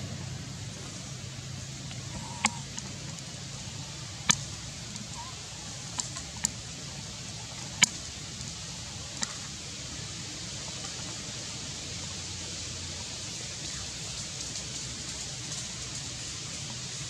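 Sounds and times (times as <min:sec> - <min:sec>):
outdoor hiss: 0:00.0 - 0:17.0.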